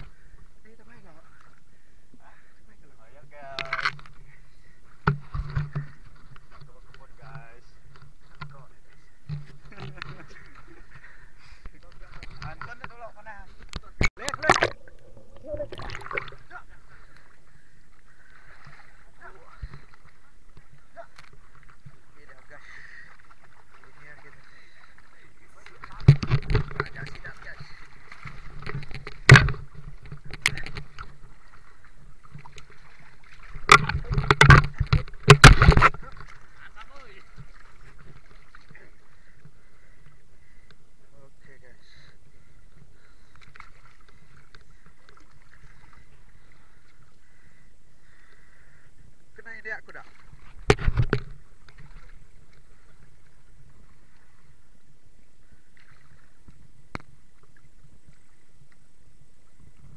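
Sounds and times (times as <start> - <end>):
water splashing around wading person: 0.0 - 59.9.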